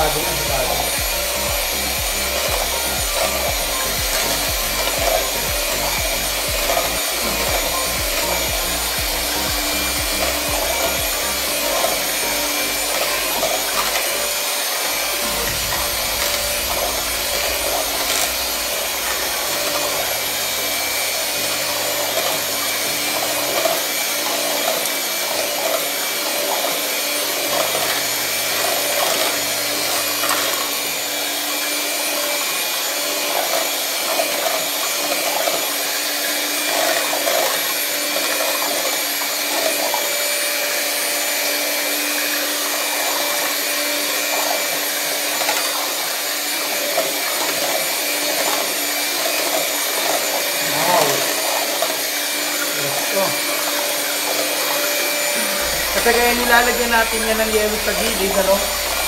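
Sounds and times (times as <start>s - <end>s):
electric hand mixer running: 0.0s - 59.0s.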